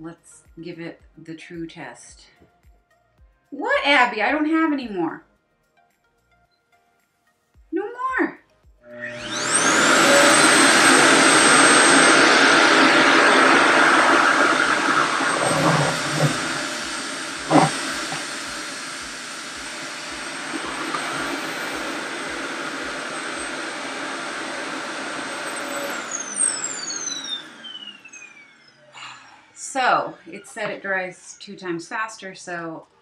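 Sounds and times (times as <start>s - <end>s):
hair dryer motor whine: 8.8s - 30.8s
air rushing through hose: 8.9s - 28.6s.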